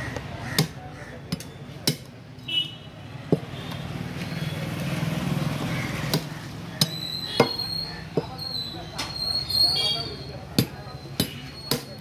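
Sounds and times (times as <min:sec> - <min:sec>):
cleaver chopping on wooden block: 0:00.2 - 0:02.2, 0:06.0 - 0:08.4, 0:10.6 - 0:12.0.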